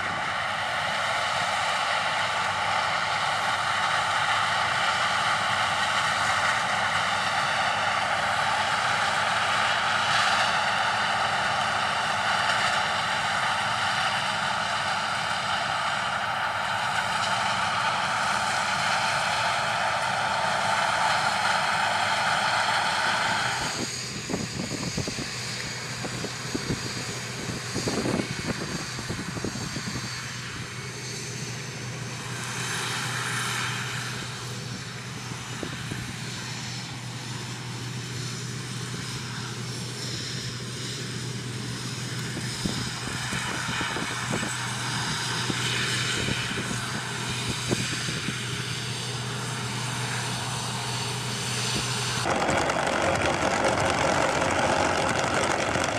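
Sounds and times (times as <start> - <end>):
combine harvester engine drone: 0.0 - 55.9
clicks and crackles: 52.3 - 55.9.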